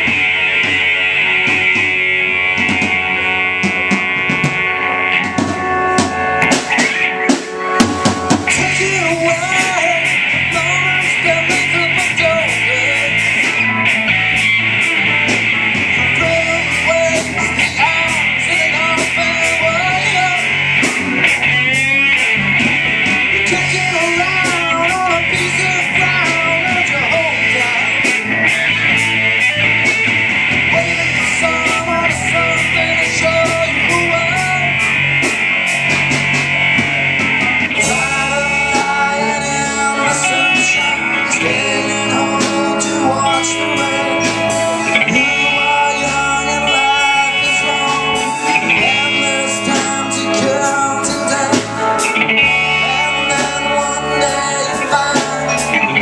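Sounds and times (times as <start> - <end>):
rock band playing: 0.0 - 56.0
male singer singing: 7.1 - 13.8, 16.0 - 22.4, 23.1 - 30.0, 30.7 - 35.0, 37.5 - 56.0.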